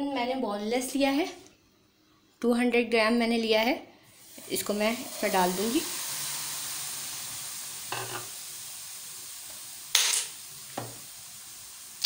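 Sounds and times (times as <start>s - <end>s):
chicken sizzling in a wok: 4.1s - 12.0s.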